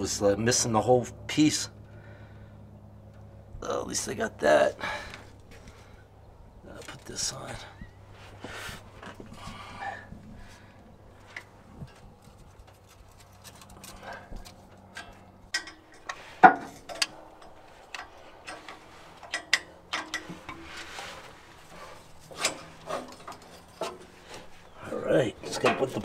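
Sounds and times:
small metal clicks and knocks: 0:11.3 - 0:21.1, 0:22.0 - 0:24.6, 0:25.4 - 0:26.0.

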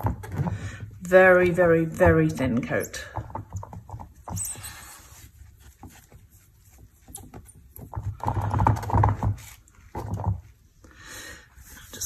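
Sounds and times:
cloth rubbing on surface: 0:04.4 - 0:07.5.

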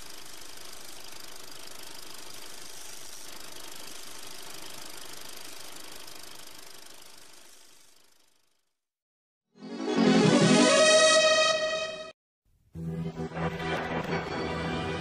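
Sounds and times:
steady hissing noise: 0:00.0 - 0:08.0.

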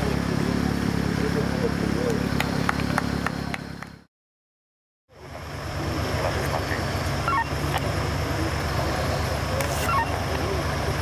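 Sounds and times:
engine running at low revs: 0:00.0 - 0:04.1, 0:05.1 - 0:11.0
faint voices: 0:07.6 - 0:11.0.

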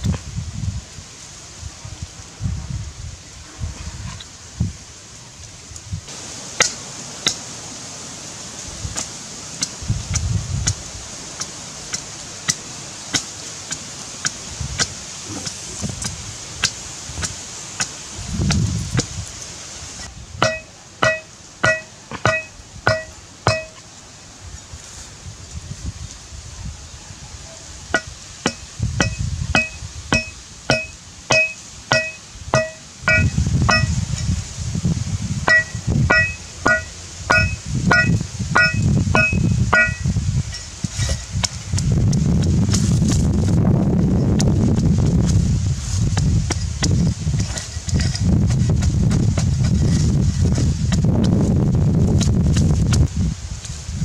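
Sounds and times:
wind rumble on microphone: 0:00.0 - 0:06.3, 0:08.5 - 0:11.9, 0:14.3 - 0:17.4, 0:18.0 - 0:20.7, 0:21.6 - 0:54.0
cleaver striking wooden stakes: 0:11.4 - 0:17.9, 0:20.4 - 0:23.8, 0:28.0 - 0:34.0, 0:35.5 - 0:41.6.

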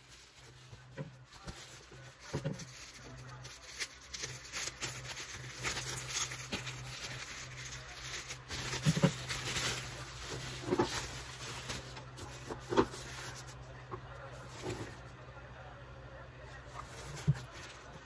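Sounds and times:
plastic bag crinkling: 0:00.0 - 0:13.6
low steady hum: 0:00.0 - 0:18.0.

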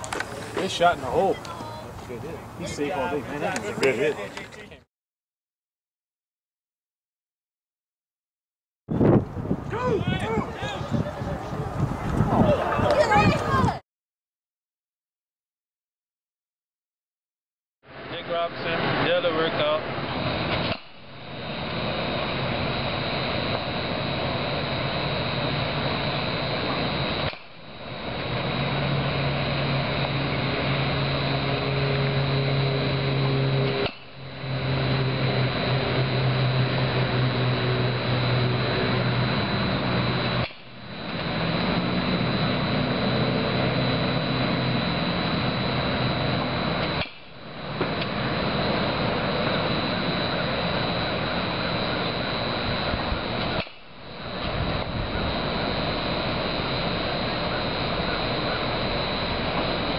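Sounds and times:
mechanical hum and rushing: 0:17.9 - 0:59.9
faint low drone: 0:21.1 - 0:59.9.

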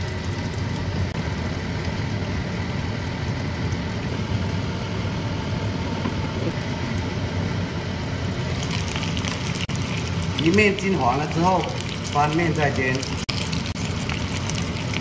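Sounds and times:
food frying with hiss: 0:08.4 - 0:15.0.

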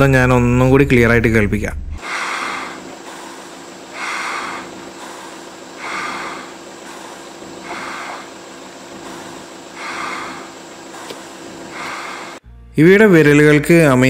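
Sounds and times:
steady low hum: 0:00.0 - 0:12.8
bear sucking breathily: 0:02.0 - 0:12.4.

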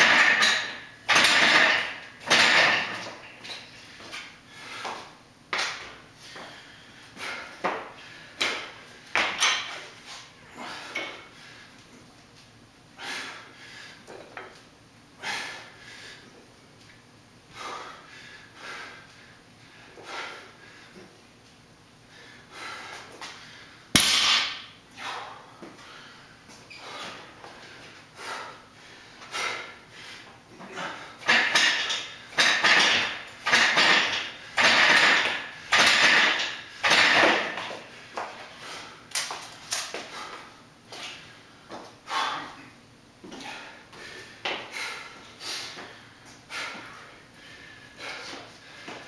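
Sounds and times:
man breathing hard: 0:03.7 - 0:05.2, 0:06.1 - 0:09.1, 0:10.3 - 0:12.0, 0:12.9 - 0:14.3, 0:15.1 - 0:16.4, 0:17.4 - 0:21.3, 0:22.0 - 0:23.9, 0:24.5 - 0:32.4, 0:36.5 - 0:39.1, 0:39.9 - 0:49.0.

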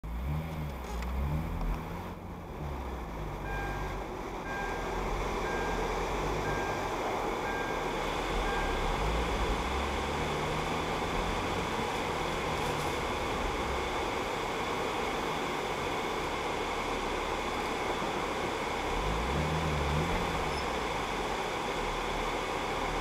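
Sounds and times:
car engine and road noise: 0:00.0 - 0:23.0
short high electronic beep: 0:03.5 - 0:09.0.

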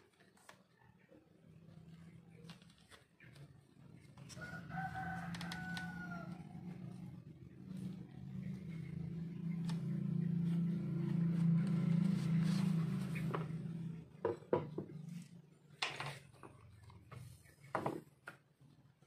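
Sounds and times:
rooster crowing: 0:04.3 - 0:07.0.

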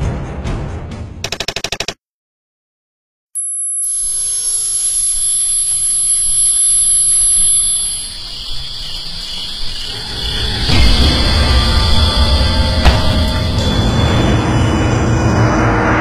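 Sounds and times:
short wavering tone: 0:03.4 - 0:08.1
thin high whine: 0:03.4 - 0:08.7
high-pitched buzzing drone: 0:03.4 - 0:16.0.

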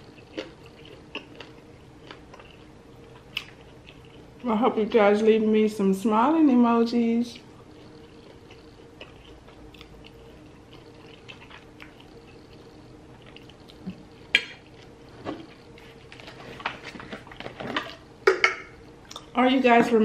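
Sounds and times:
wet chewing and mouth smacks: 0:00.0 - 0:04.2, 0:07.4 - 0:15.6.

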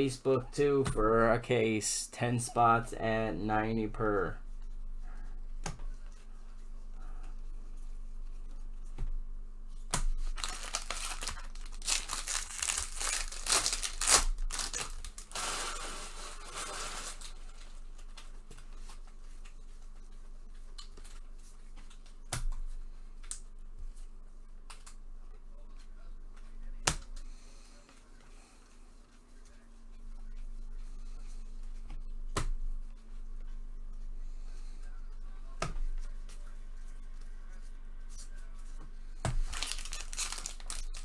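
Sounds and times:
wrapper tearing and rustling: 0:10.2 - 0:17.5, 0:39.4 - 0:41.0.

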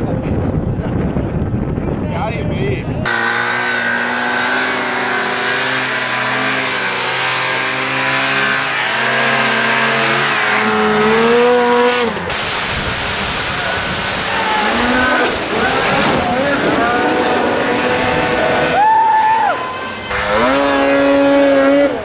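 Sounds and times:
snowmobile engine revving: 0:03.1 - 0:22.0.

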